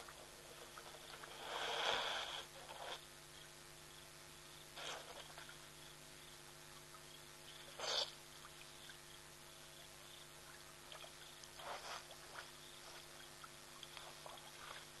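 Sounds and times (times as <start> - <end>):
elephant breath bursts: 1.3 - 2.9.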